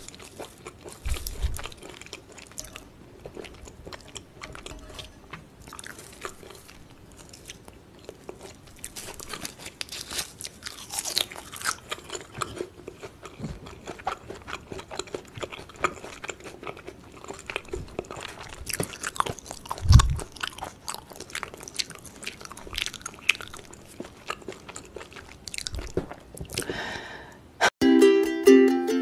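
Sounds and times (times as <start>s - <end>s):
wet chewing crunches: 5.7s - 26.6s.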